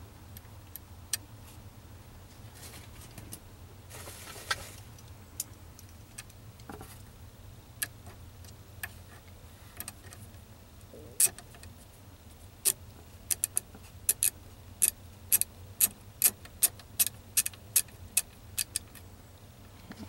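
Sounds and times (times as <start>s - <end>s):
low steady hum: 0.0s - 20.0s
scraping rustle: 2.3s - 3.3s, 3.9s - 4.9s
small parts clicking and tapping: 11.2s - 11.8s, 12.6s - 19.1s.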